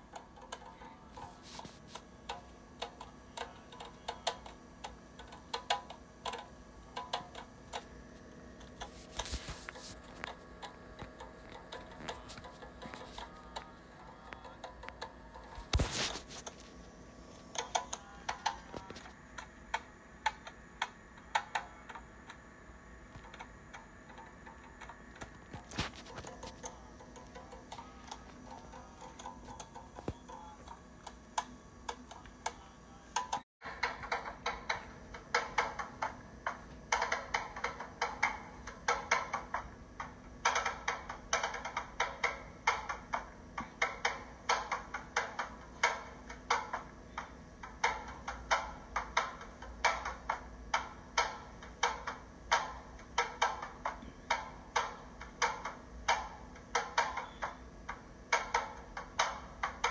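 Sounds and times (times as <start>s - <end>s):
rhythmic tapping: 0.0s - 59.9s.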